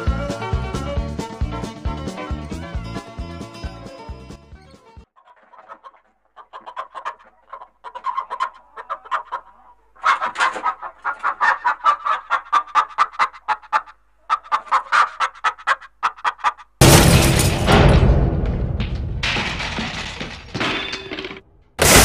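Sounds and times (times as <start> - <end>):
chicken clucking: 5.2 - 16.8.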